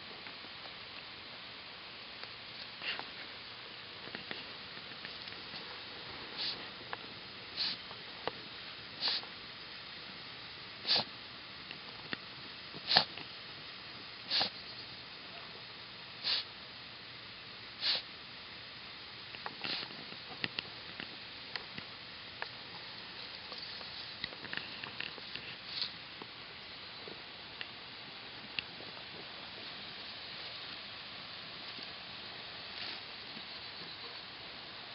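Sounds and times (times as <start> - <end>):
dog sniffing: 6.4 - 6.7, 7.6 - 7.8, 9.0 - 9.3, 10.8 - 11.1, 12.8 - 13.2, 14.3 - 14.6, 16.2 - 16.5, 17.8 - 18.1, 19.6 - 20.0.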